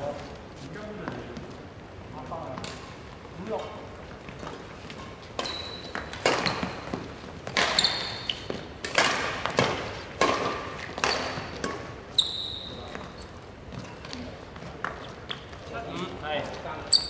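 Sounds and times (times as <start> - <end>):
shoes squeaking on wooden floor: 4.2 - 8.7, 10.9 - 15.8, 16.4 - 17.0
racket hitting shuttlecock: 4.3 - 12.1.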